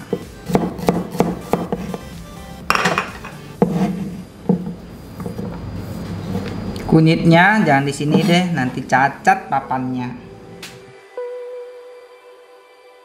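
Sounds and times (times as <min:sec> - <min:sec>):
knife chopping on wooden board: 0:00.0 - 0:05.4
background music: 0:00.0 - 0:13.0.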